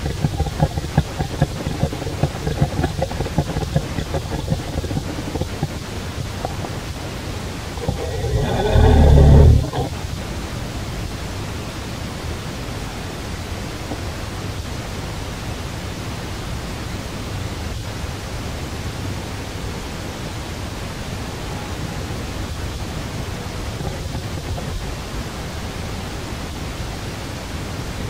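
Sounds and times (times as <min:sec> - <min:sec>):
faint ticks: 0:00.0 - 0:05.8
outdoor background noise: 0:00.0 - 0:28.0.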